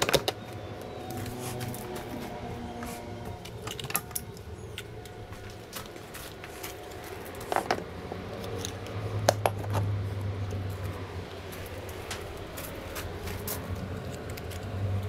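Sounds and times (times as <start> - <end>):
metal tools clinking: 3.4 - 7.8.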